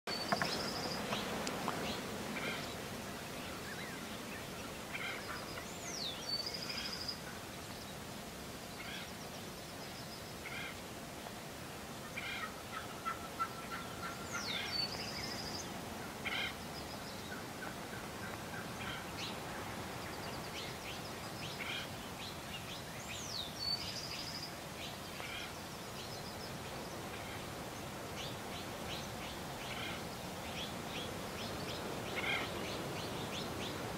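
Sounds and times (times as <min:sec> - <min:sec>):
small bird singing: 0:20.1 - 0:26.8.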